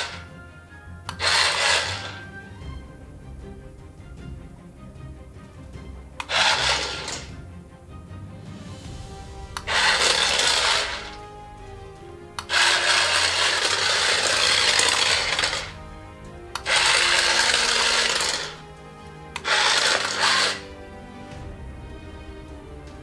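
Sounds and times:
toy motor and wheels on tile: 0.0s - 0.2s, 1.1s - 2.2s, 6.2s - 7.3s, 9.6s - 11.2s, 12.4s - 15.8s, 16.6s - 18.6s, 19.4s - 20.6s.

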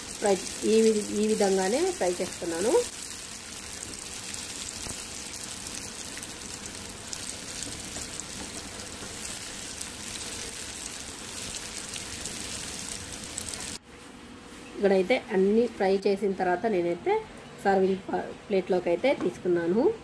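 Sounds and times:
food sizzling in hot oil: 0.0s - 13.8s.

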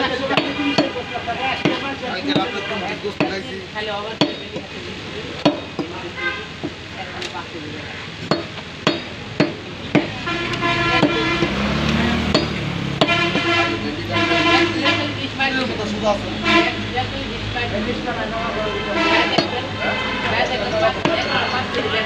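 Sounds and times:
street noise: 0.0s - 22.0s
vehicle engine: 6.5s - 22.0s
pitched tones: 9.9s - 22.0s
cleaver chopping meat on wood: 12.3s - 13.2s.

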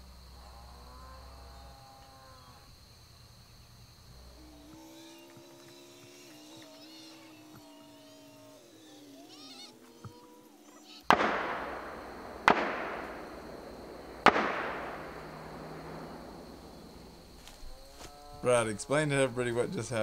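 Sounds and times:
faint animal calls: 0.0s - 20.0s
gunshots with rolling echo: 11.1s - 17.5s.

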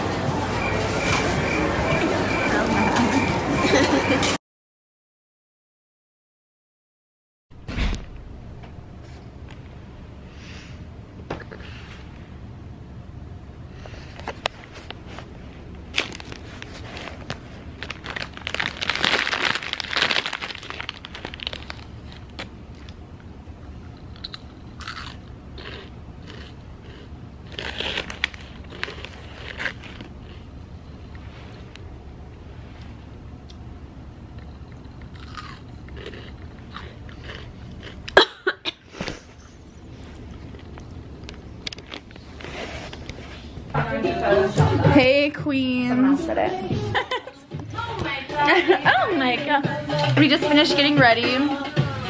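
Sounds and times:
plastic bag crinkling: 15.9s - 22.5s
snack bag crackling: 15.9s - 23.0s, 24.2s - 30.5s
chips being chewed: 16.0s - 23.0s, 23.8s - 30.5s, 34.4s - 38.3s, 40.1s - 43.1s.

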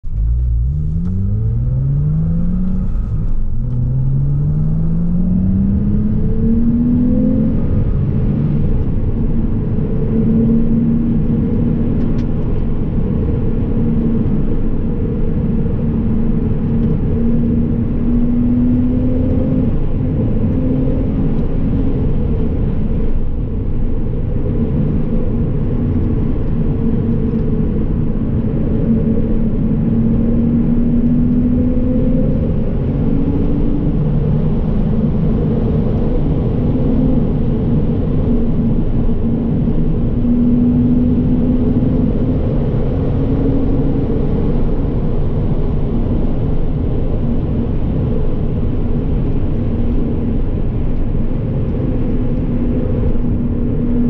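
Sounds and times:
tyre and road rumble: 0.0s - 23.8s
car engine accelerating through gears: 0.0s - 54.0s.

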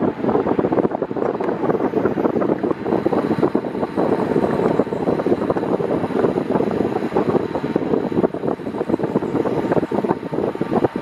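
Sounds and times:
fan wind buffeting microphone: 0.0s - 11.0s.

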